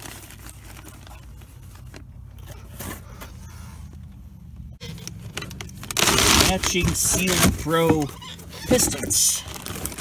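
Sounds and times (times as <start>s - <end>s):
cardboard box rustling: 5.2s - 10.0s.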